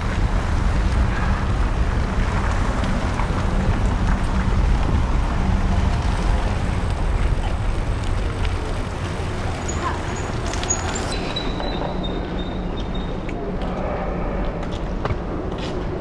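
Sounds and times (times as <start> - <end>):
wind buffeting microphone: 0.0 - 11.2
cars passing close by: 0.0 - 11.3
tyres on tarmac: 0.0 - 16.0.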